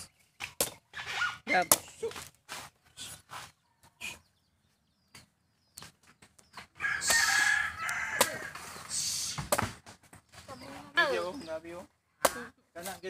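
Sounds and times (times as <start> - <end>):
machete chopping coconut husk: 0.4 - 0.8, 1.5 - 2.7, 7.0 - 8.6, 9.2 - 10.0, 12.2 - 12.9
rooster crowing: 6.8 - 8.6.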